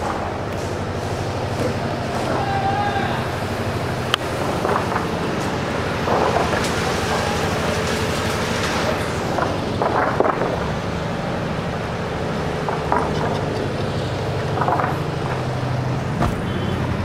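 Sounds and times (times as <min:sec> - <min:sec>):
engine noise: 0:00.0 - 0:17.0
road traffic: 0:00.0 - 0:17.0.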